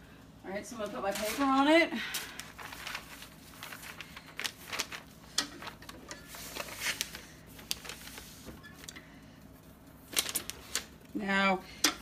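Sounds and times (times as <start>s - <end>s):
paper rustling and crinkling: 0.8s - 8.9s, 9.6s - 11.1s.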